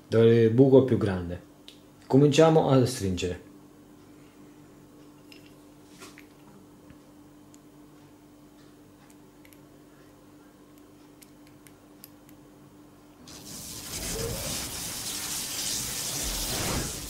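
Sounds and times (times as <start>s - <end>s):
hissing electric crackle effect: 13.3s - 17.0s.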